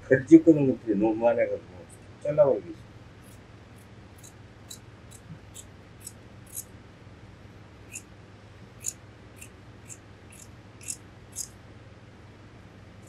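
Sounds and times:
scissors snipping fur: 3.2s - 6.7s, 7.9s - 8.1s, 8.8s - 11.6s.

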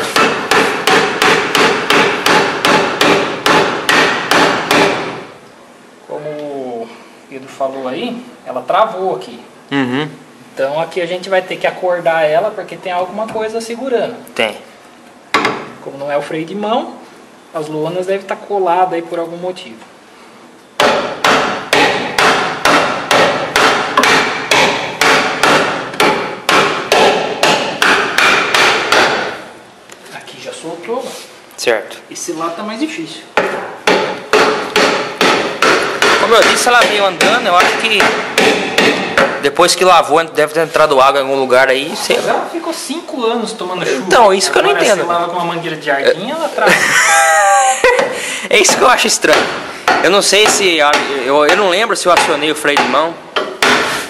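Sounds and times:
hammer striking metal drum: 0.0s - 5.2s, 20.8s - 29.4s, 33.4s - 39.5s, 48.0s - 53.9s.

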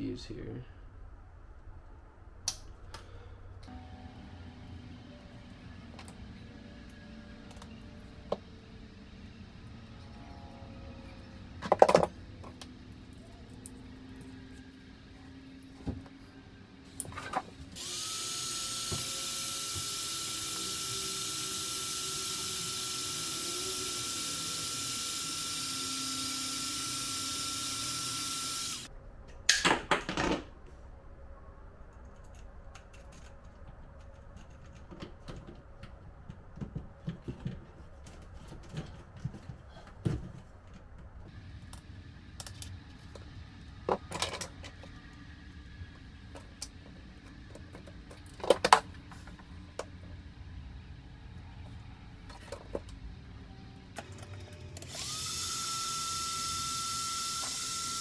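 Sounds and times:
heat gun running: 17.7s - 28.9s, 54.8s - 58.0s.

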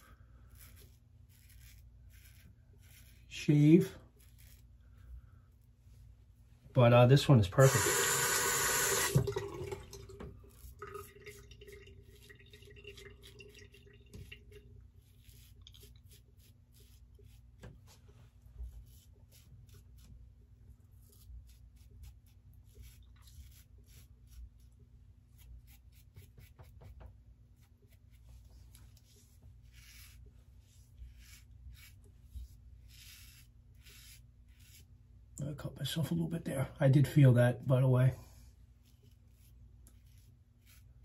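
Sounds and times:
razor scraping stubble: 0.0s - 5.6s, 6.8s - 9.2s, 14.2s - 35.2s, 38.6s - 41.0s.

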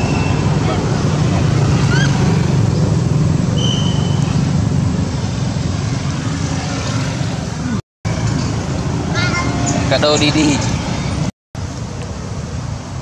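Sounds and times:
road traffic rumble: 0.0s - 13.0s
short rising squeak: 3.5s - 4.5s
brief high whistle: 3.6s - 4.3s.

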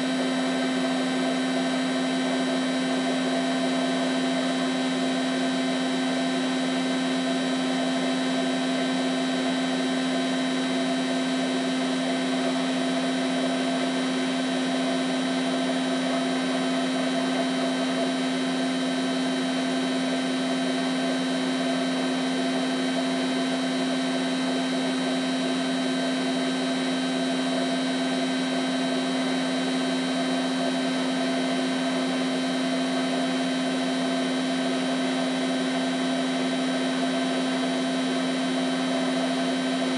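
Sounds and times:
washing machine spinning: 0.0s - 39.9s.

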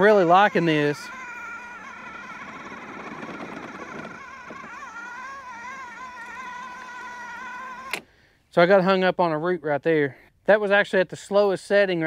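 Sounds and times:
electric lawn mower motor whine: 0.0s - 8.3s.

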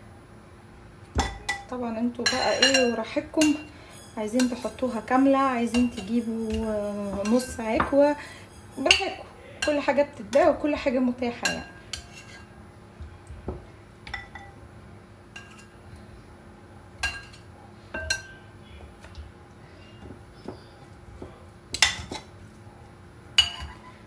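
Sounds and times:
metal tongs clinking on ceramic: 1.2s - 10.6s, 11.4s - 12.5s, 15.4s - 15.8s, 17.0s - 18.4s, 21.7s - 22.3s, 23.4s - 23.9s.

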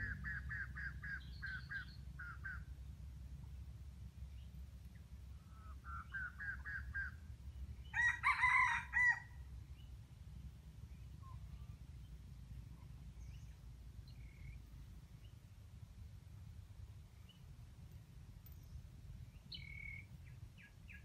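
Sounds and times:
rooster crowing: 7.9s - 9.4s.

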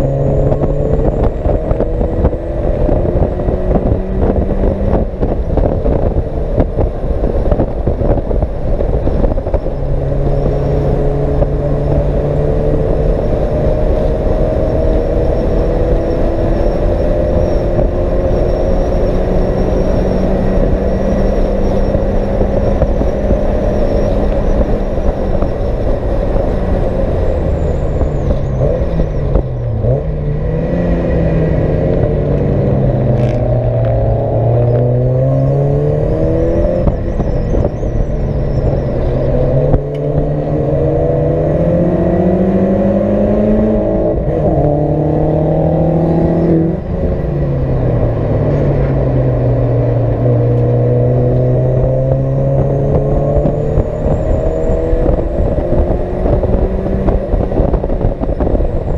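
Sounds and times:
race car engine revving: 0.0s - 58.9s
road and wind noise: 0.0s - 58.9s.

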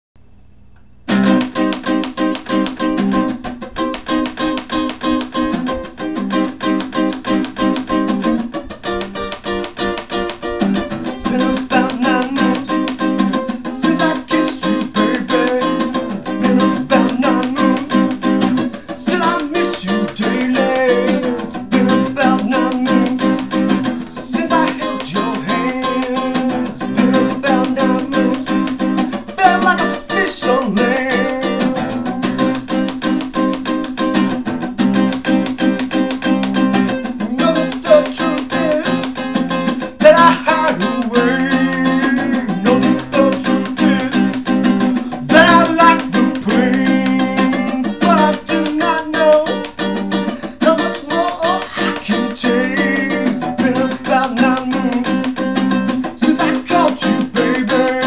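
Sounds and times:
acoustic guitar strumming: 1.1s - 58.0s
man singing: 10.9s - 32.9s, 36.7s - 58.0s.

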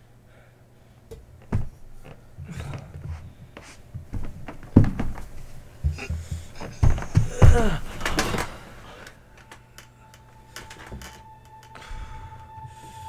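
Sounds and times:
dull thumps and knocks: 1.1s - 8.5s.

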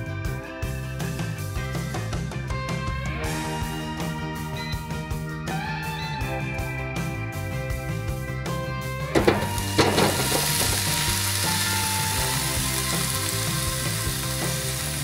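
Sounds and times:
background music: 0.0s - 15.0s
food clattering into basket: 9.2s - 11.8s
food sizzling: 9.2s - 15.0s.

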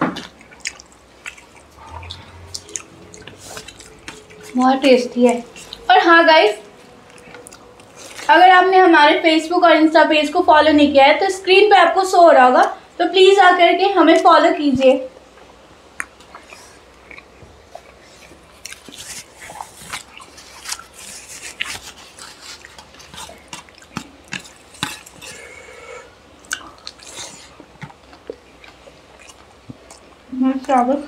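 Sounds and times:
wet chewing and lip-smacking: 0.2s - 8.3s, 16.0s - 25.5s, 26.4s - 31.0s.

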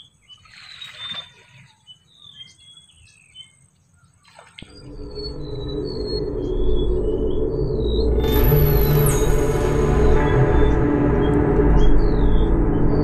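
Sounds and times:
small birds chirping: 0.0s - 8.2s
background music: 4.6s - 13.0s.

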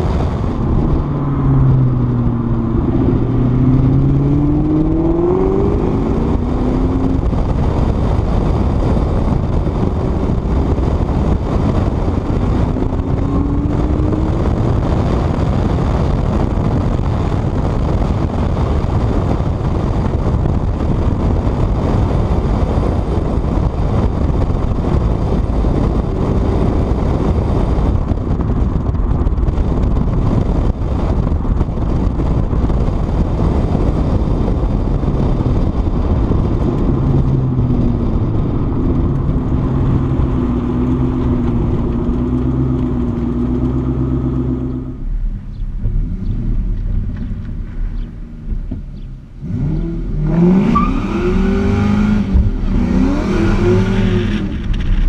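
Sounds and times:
car engine revving: 0.0s - 55.0s
wind and road noise: 0.0s - 55.0s.

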